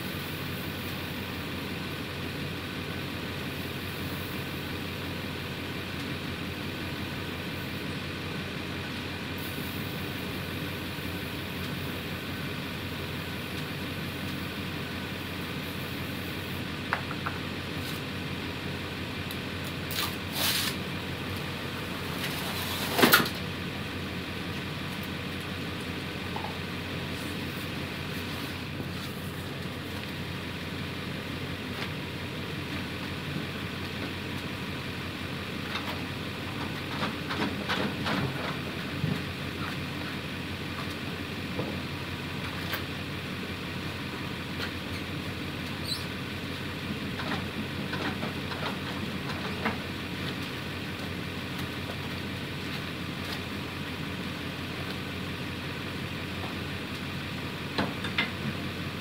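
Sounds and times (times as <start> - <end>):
tire thudding and rubbing on rim: 19.9 - 20.9.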